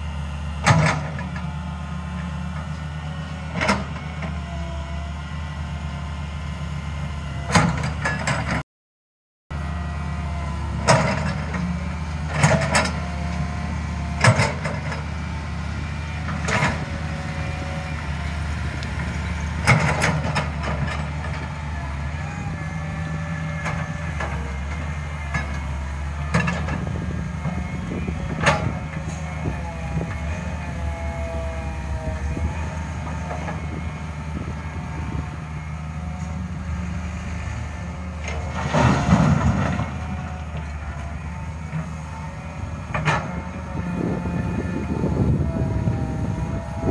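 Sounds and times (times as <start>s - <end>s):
diesel engine running under load: 0.0s - 8.6s, 9.5s - 46.9s
excavator bucket clanks and knocks: 14.2s - 15.0s.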